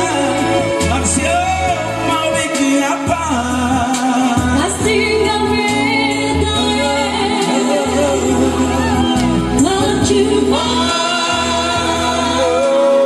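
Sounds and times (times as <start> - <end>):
amplified music with bass: 0.0 - 13.0
man singing into microphone: 0.0 - 13.0
woman singing: 4.4 - 13.0.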